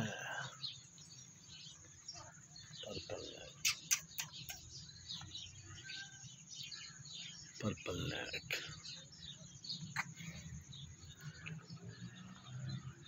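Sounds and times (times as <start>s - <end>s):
faint voices: 0.0s - 0.8s, 2.0s - 4.6s, 7.6s - 9.0s
small birds chirping: 0.0s - 13.0s.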